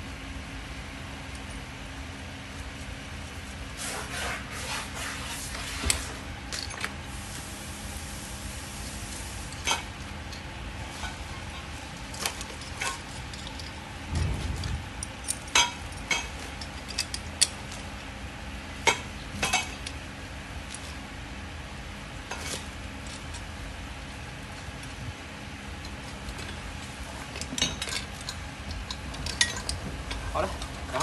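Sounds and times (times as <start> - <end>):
steady hiss: 7.1 - 9.7
small metal parts clinking: 12.1 - 17.9, 27.3 - 31.0.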